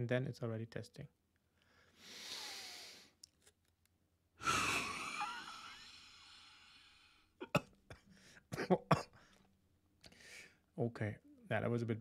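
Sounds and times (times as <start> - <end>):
deep breath in: 1.6 - 3.2
forced exhalation into mouthpiece: 2.0 - 3.2.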